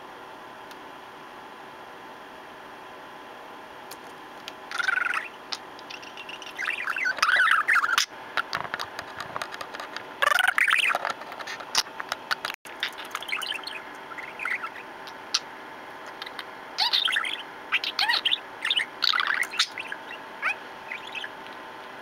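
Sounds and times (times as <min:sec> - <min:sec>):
budgerigar chattering and warbling: 0:04.7 - 0:08.1, 0:12.8 - 0:15.5, 0:16.1 - 0:21.4.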